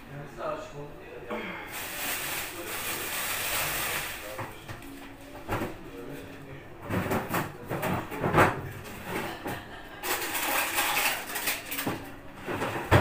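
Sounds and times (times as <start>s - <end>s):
dishes and utensils clinking: 6.8s - 13.0s.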